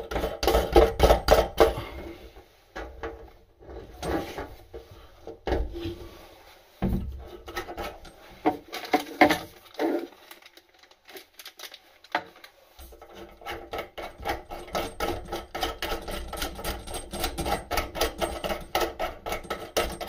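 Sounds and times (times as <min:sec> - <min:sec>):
tap fittings clicking and knocking: 0:13.0 - 0:20.0.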